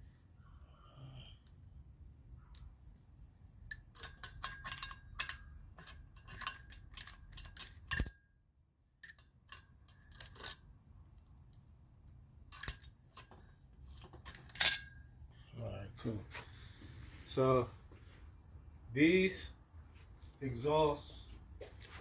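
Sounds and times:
small metal parts clinking: 0:03.6 - 0:08.3, 0:09.0 - 0:10.7, 0:12.5 - 0:15.1.

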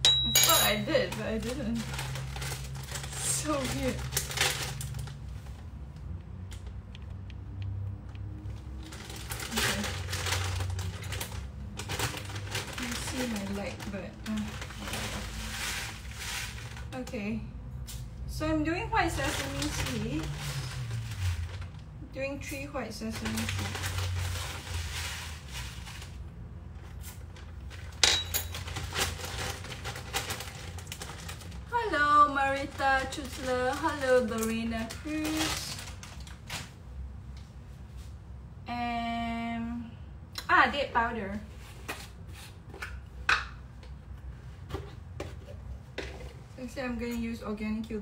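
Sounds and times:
low steady hum: 0:00.0 - 0:48.0
ingredients clicking and rustling: 0:00.6 - 0:05.2, 0:06.5 - 0:17.2.

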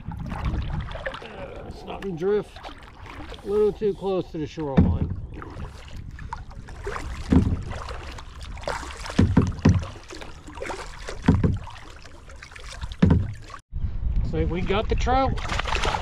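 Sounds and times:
water splashing: 0:00.0 - 0:13.6, 0:14.6 - 0:16.0
low thumps: 0:04.6 - 0:05.5, 0:07.1 - 0:08.0, 0:09.0 - 0:10.1, 0:11.2 - 0:11.8, 0:12.9 - 0:13.6.

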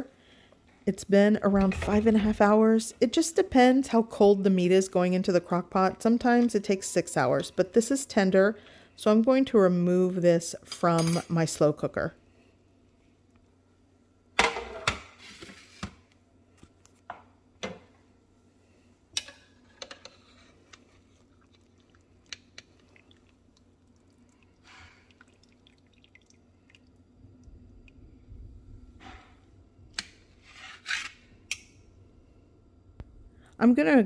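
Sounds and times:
wet squelching of meat: 0:21.0 - 0:27.0.

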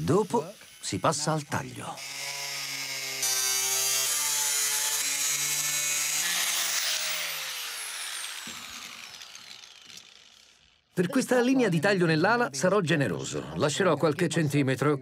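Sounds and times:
grinder disc cutting metal hiss: 0:00.0 - 0:10.9
angle grinder motor whine: 0:00.0 - 0:11.0
grinder spinning down: 0:00.0 - 0:11.2.

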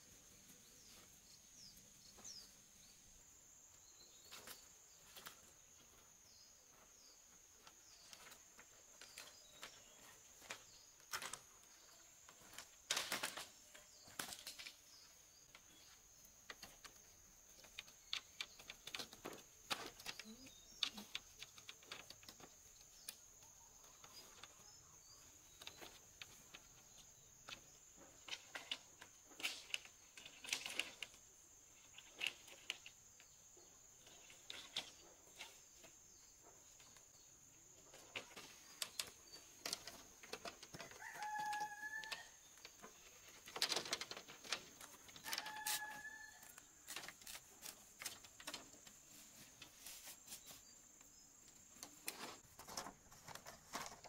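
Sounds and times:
bamboo strips clacking: 0:38.0 - 0:50.6.

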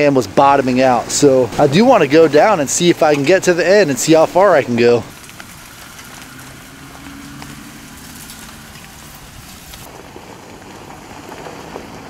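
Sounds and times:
tyres rolling over leaves and dirt: 0:00.0 - 0:12.0
low engine hum: 0:04.6 - 0:12.0.

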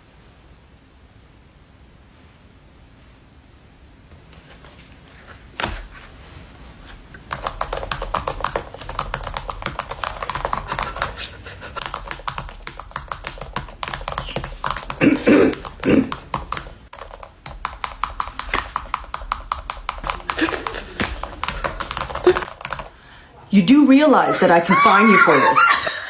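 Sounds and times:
typing on computer keyboard: 0:07.2 - 0:22.9.

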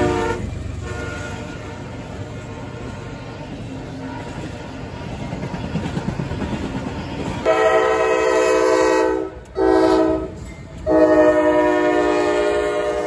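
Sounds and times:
locomotive air horn blasts: 0:00.0 - 0:03.2, 0:07.4 - 0:13.0
train wheels rumbling on rail: 0:00.0 - 0:13.0.

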